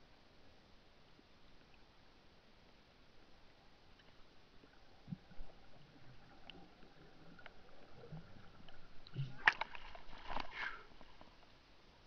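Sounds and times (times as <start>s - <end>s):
underwater bubbling: 1.6s - 11.4s
underwater ticks: 3.2s - 11.6s
water splashing and sloshing: 3.8s - 11.7s.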